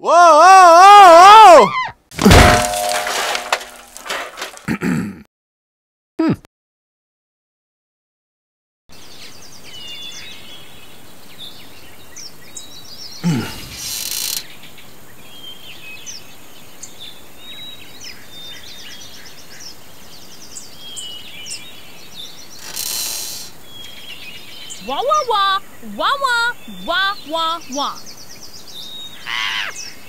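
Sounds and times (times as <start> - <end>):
birds chirping and trilling: 9.0 - 30.0
steady hiss: 13.5 - 15.2, 22.4 - 24.5.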